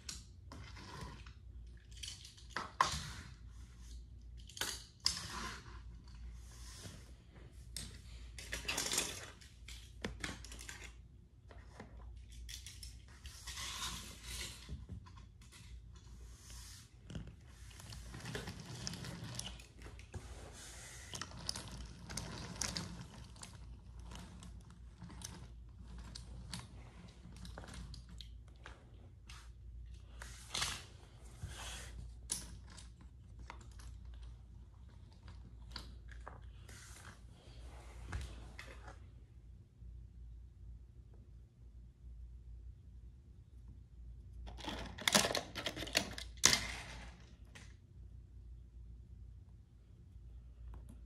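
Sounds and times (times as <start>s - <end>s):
toy train scraping rustle: 13.3s - 14.7s
wooden toy train clicks and knocks: 44.5s - 46.9s.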